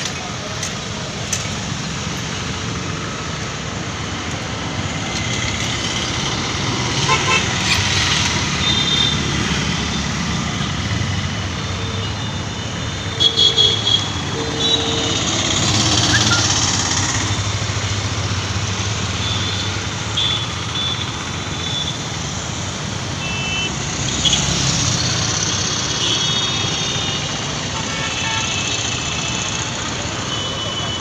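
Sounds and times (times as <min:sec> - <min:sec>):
street traffic passing: 0:00.0 - 0:31.0
vehicle horns honking: 0:07.0 - 0:07.7, 0:12.2 - 0:16.5, 0:23.2 - 0:24.4, 0:26.0 - 0:28.9.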